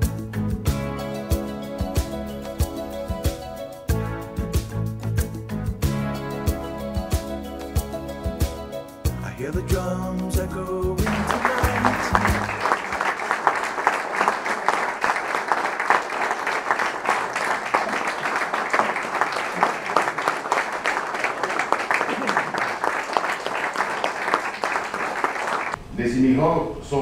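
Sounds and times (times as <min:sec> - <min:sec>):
music: 0:00.0 - 0:13.4
audience applauding: 0:11.0 - 0:25.8.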